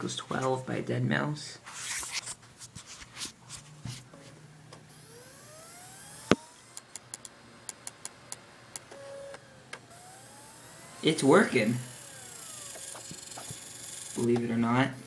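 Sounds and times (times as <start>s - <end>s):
disc drive whining: 3.8s - 15.0s
disc drive loud click: 6.2s - 10.3s, 12.0s - 14.5s.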